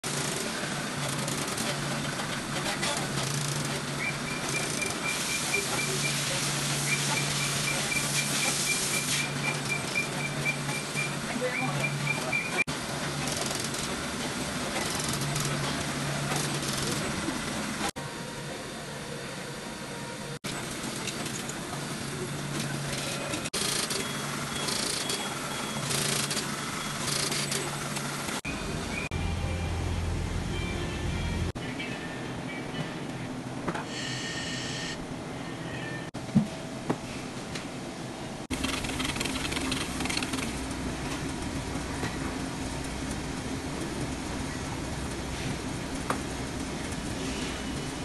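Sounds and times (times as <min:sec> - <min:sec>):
machines whirring with low hum: 0:00.0 - 0:48.0
rapid short electronic beeps: 0:06.8 - 0:12.6.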